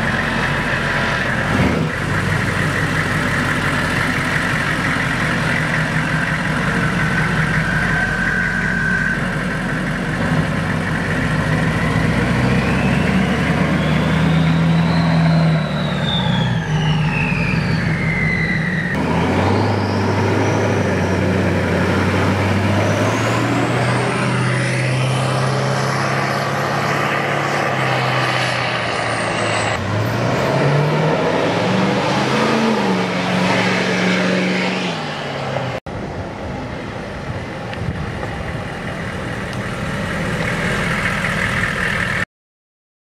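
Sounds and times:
diesel engine driving off: 0.0 - 42.3
high whistle: 7.4 - 9.6, 12.5 - 21.2.

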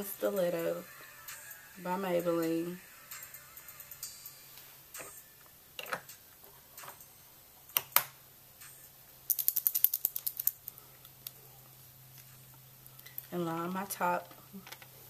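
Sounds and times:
ratchet-like clicks: 9.3 - 10.7.

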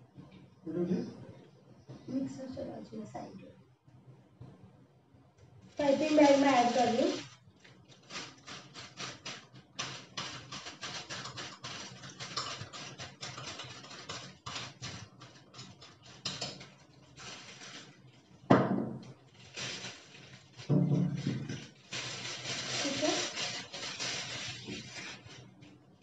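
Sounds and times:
plastic bag crinkling: 5.7 - 26.0.

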